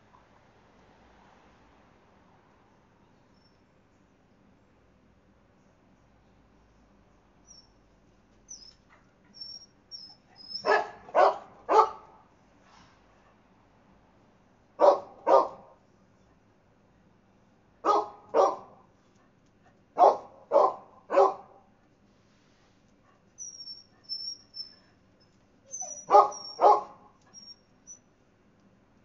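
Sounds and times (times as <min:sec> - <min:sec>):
high squeaky chirping: 0:08.5 - 0:10.8, 0:23.4 - 0:28.1
dog barking: 0:10.5 - 0:12.2, 0:14.8 - 0:15.8, 0:17.8 - 0:18.9, 0:20.0 - 0:21.6, 0:25.9 - 0:27.2.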